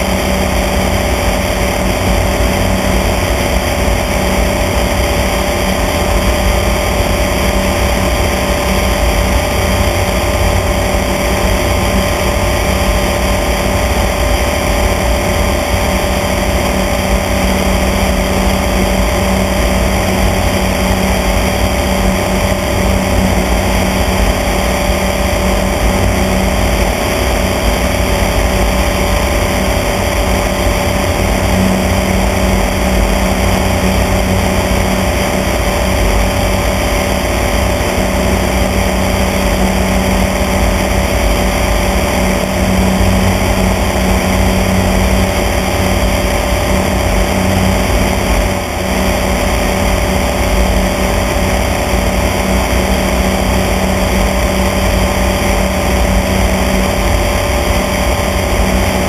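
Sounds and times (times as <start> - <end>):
rushing air: 0.0 - 59.0
small airplane engine droning: 0.0 - 59.0.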